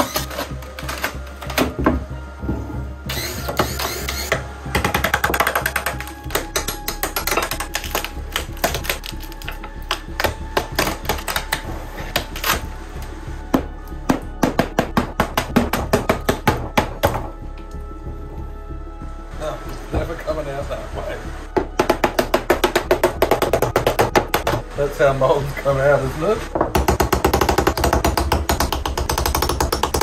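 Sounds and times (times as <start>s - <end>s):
music with quick percussive beat: 3.1s - 12.7s, 13.5s - 17.6s, 21.6s - 24.8s, 26.5s - 30.0s.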